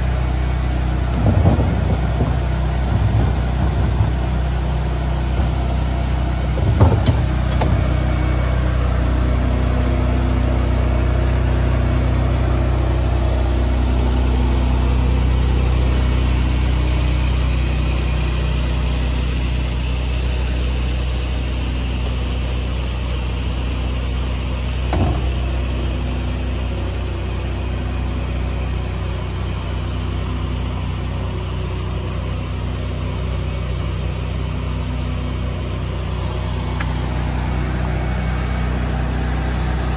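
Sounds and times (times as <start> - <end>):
truck engine idling: 0.0 - 39.9
short knocks: 6.5 - 8.0.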